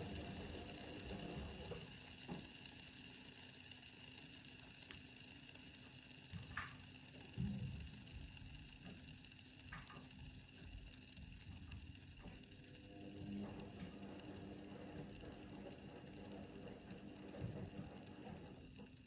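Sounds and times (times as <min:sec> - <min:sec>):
faint clicks: 0:00.0 - 0:19.0
fidget spinner whirring: 0:00.0 - 0:19.0.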